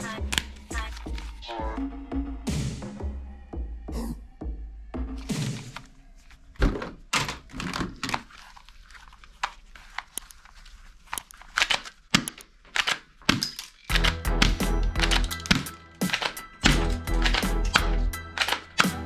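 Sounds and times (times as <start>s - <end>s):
plastic toys clattering: 6.6s - 19.0s
sharp clicks and taps: 11.2s - 19.0s.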